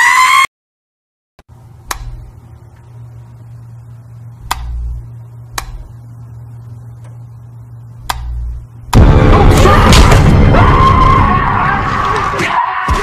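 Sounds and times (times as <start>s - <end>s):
low steady hum: 1.5s - 11.5s
dull thuds with sharp clicks: 8.0s - 9.1s.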